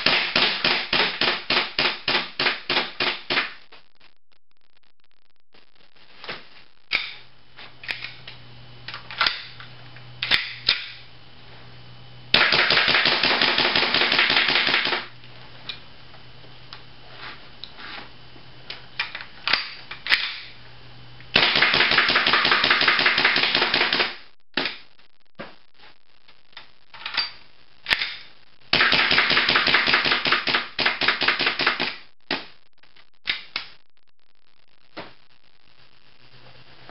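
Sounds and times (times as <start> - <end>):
airsoft pistol shots: 12.3 - 15.1, 21.4 - 24.2.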